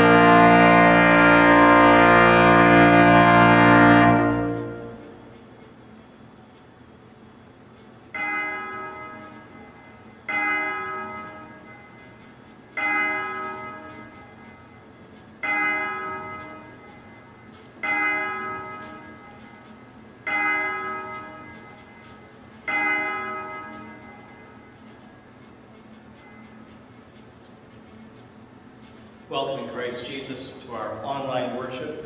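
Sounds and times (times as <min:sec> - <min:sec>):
church bell tolling: 0:00.0 - 0:05.4, 0:08.2 - 0:24.8.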